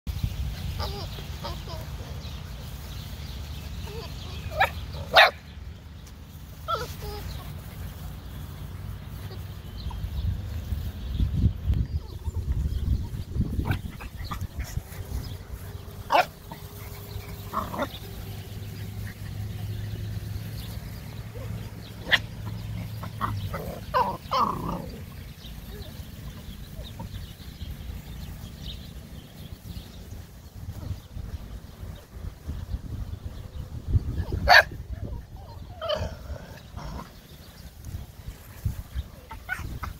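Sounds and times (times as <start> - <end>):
puppies barking: 0.6 - 5.6, 6.5 - 10.2, 12.0 - 27.8, 34.1 - 37.8, 38.5 - 39.9.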